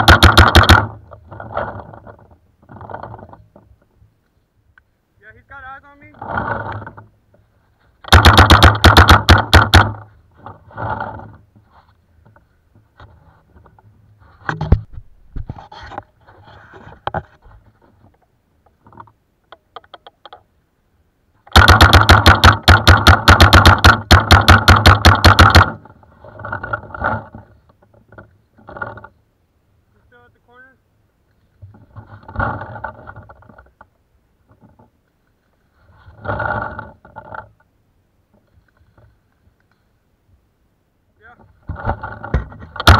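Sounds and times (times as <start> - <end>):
paintball marker firing rapidly: 0.0 - 1.0, 8.1 - 10.0, 21.5 - 25.8
faint knocks and rustles: 1.0 - 5.0, 9.9 - 20.5, 25.8 - 29.3, 31.2 - 40.4, 41.2 - 42.9.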